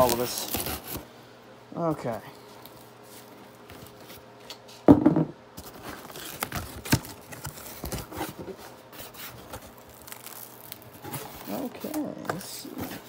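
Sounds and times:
cardboard scraping and rustling: 0:05.6 - 0:13.0.

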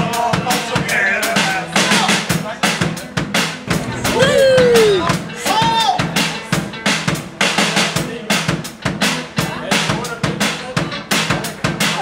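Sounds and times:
drum kit playing a steady beat: 0:00.0 - 0:12.0
repeating bass line: 0:03.6 - 0:05.3
short sliding note: 0:03.7 - 0:05.2.

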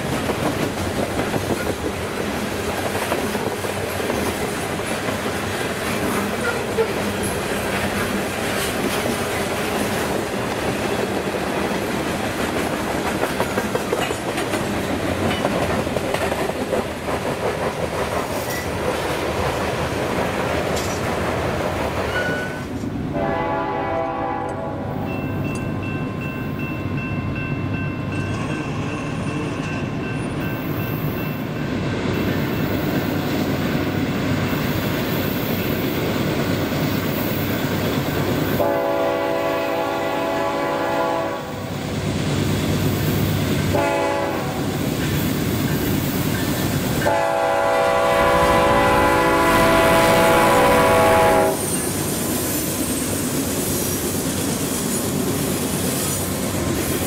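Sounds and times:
freight train rolling past: 0:00.0 - 0:57.0
locomotive air horn: 0:22.4 - 0:24.9, 0:38.6 - 0:41.7, 0:43.7 - 0:44.8, 0:47.0 - 0:51.7.

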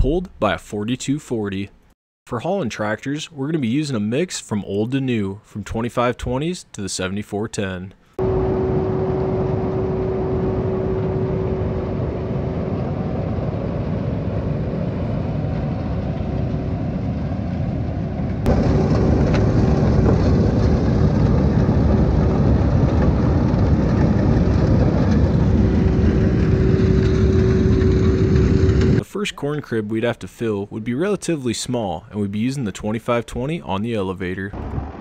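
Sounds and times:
steady whine: 0:08.1 - 0:29.2, 0:34.5 - 0:35.0
tractor diesel engine: 0:08.2 - 0:12.6, 0:24.2 - 0:29.0, 0:34.6 - 0:35.0.

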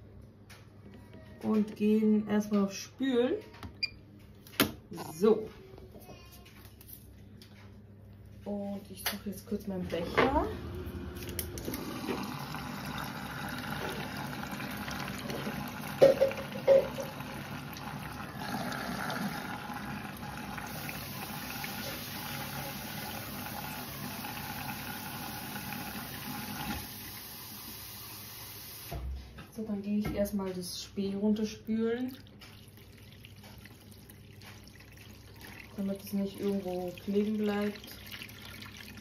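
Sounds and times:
water rushing into washing machine: 0:09.9 - 0:29.0, 0:32.0 - 0:39.0
laundry sloshing in drum: 0:32.0 - 0:39.0.

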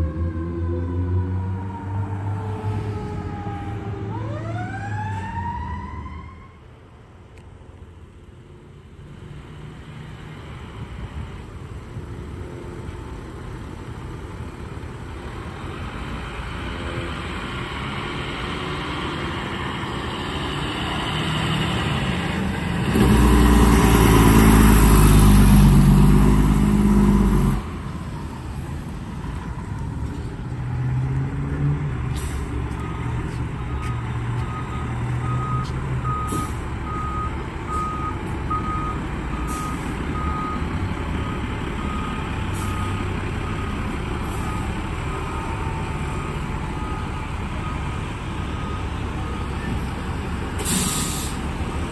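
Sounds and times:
fire engine diesel engine: 0:00.0 - 0:51.9
reversing alarm beeping: 0:32.7 - 0:49.9
short hisses: 0:50.6 - 0:51.4.

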